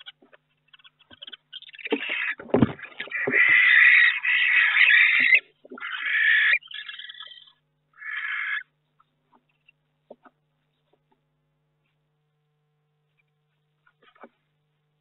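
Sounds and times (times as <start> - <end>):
owls hissing rasps: 0.0 - 8.7.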